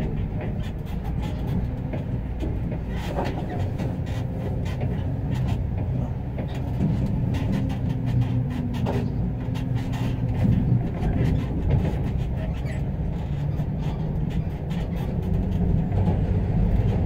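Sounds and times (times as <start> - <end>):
light rattles and clicks: 0.0 - 17.0
low rumble of engine and road: 0.0 - 17.0.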